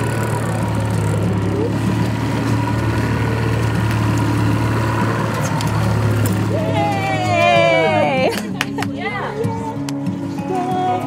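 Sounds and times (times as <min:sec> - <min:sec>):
outboard motor droning: 0:00.0 - 0:08.4.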